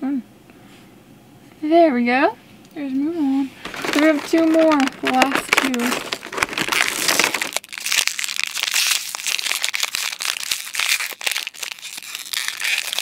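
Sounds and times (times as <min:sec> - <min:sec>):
plastic packaging crinkling: 0:03.2 - 0:13.0.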